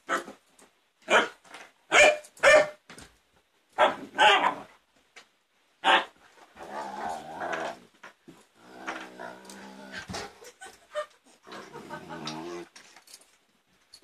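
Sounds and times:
dogs barking: 1.1s - 2.8s
dog growling call: 6.6s - 7.8s, 8.6s - 10.2s, 11.5s - 12.7s.

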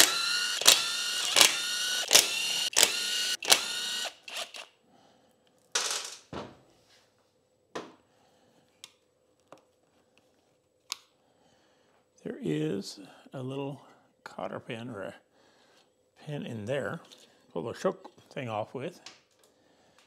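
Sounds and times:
impact driver motor whine: 0.0s - 4.6s.

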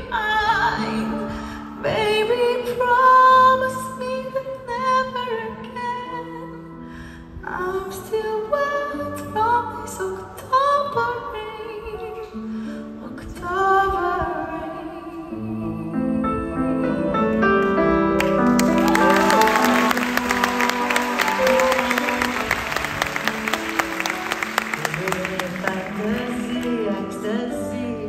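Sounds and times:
piano and band chords: 15.4s - 28.0s
audience applause and cheering: 18.2s - 27.1s
woman singing wordless notes: 18.8s - 23.5s, 24.6s - 28.0s.

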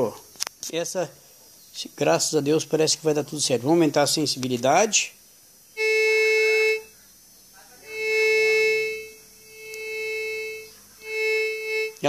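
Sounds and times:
metal detector tone: 5.8s - 6.9s, 7.8s - 12.0s.

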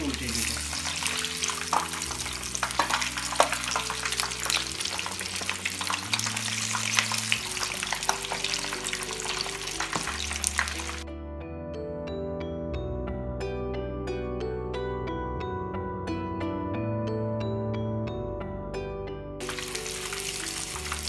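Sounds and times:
chicken deep-frying in oil: 0.0s - 11.0s, 19.4s - 21.0s.

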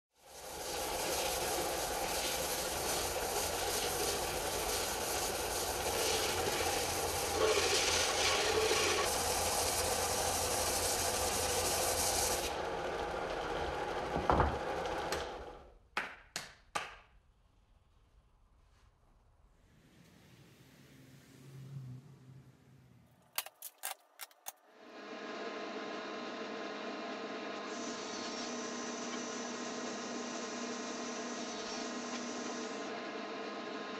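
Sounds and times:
belt sander sanding wood: 0.2s - 15.5s
motor winding down: 0.3s - 15.7s.

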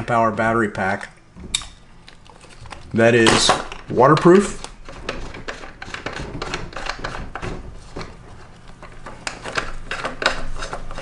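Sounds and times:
plastic case clicking and rubbing: 3.6s - 11.0s.

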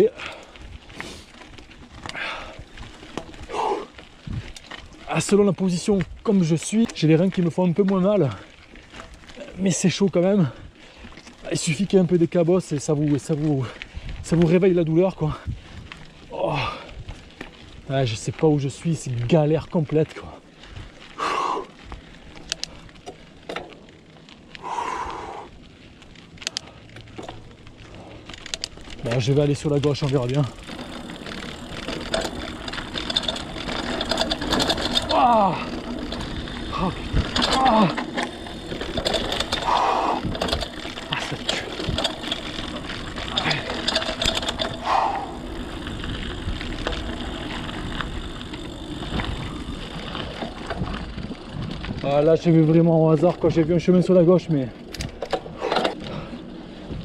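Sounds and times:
rider exhaling: 0.0s - 1.4s, 2.0s - 4.0s, 16.3s - 17.1s, 21.1s - 21.9s, 24.5s - 25.6s, 30.4s - 46.2s, 55.4s - 56.6s
bike tyres clicking over stones: 0.0s - 57.0s.

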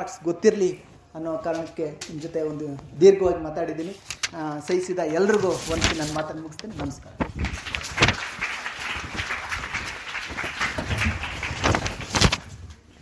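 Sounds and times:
audience applauding: 7.4s - 12.1s.

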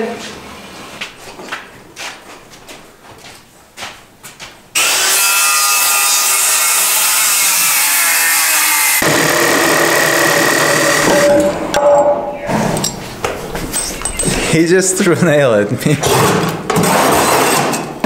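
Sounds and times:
power tool running: 4.8s - 11.6s.

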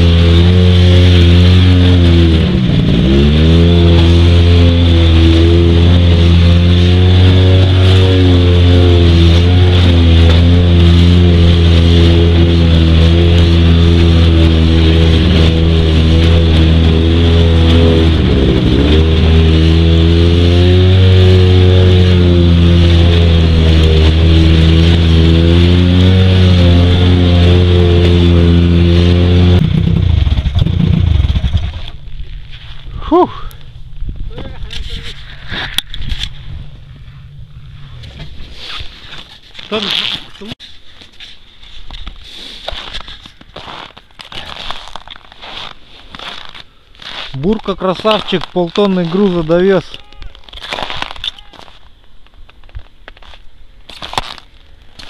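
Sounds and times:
snowmobile engine running: 0.0s - 32.2s, 42.7s - 51.7s.

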